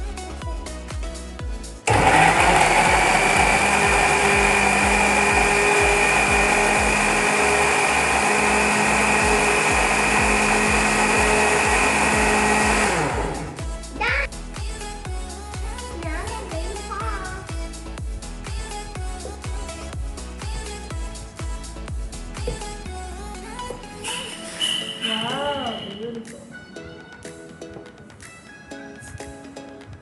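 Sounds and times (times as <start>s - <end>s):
background music with steady beat: 0.0s - 30.0s
blender motor running: 1.9s - 13.7s.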